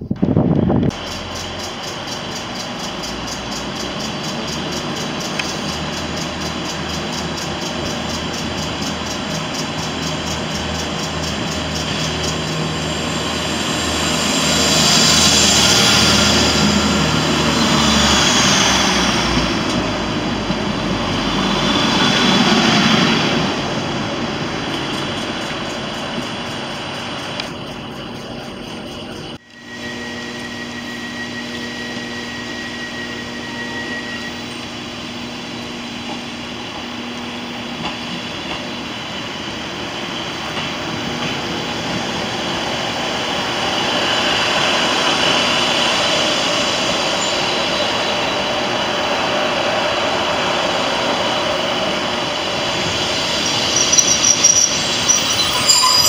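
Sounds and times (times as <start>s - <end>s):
train engine hum with whine: 0.0s - 56.0s
train passing close by: 0.0s - 56.0s.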